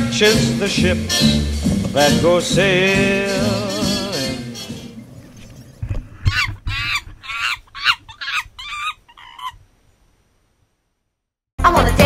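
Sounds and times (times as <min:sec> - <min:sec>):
dance music: 0:00.0 - 0:05.0, 0:11.6 - 0:12.0
shrill animal calls: 0:04.7 - 0:09.7.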